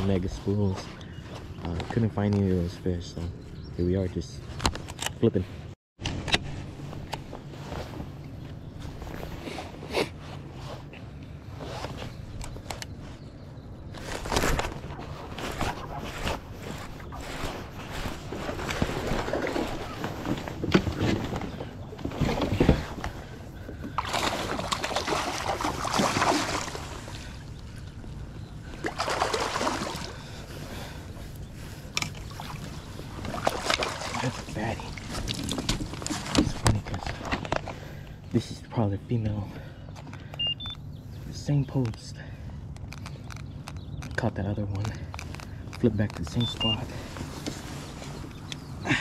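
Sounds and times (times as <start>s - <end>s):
water lapping around a kayak: 12.9s - 38.3s
knocks and clicks of gear on hull: 35.0s - 37.8s.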